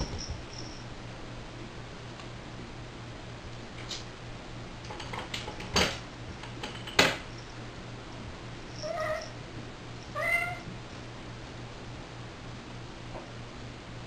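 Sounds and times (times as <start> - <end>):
cat meowing: 8.8 - 9.4, 10.1 - 10.7.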